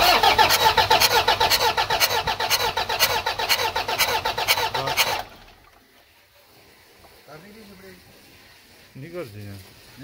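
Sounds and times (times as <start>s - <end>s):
diesel engine cranking on starter: 0.0s - 5.8s.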